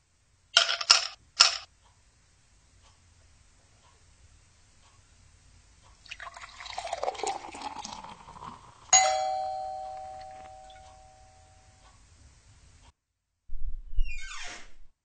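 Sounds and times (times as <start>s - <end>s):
two-tone doorbell chime: 9.0s - 11.8s.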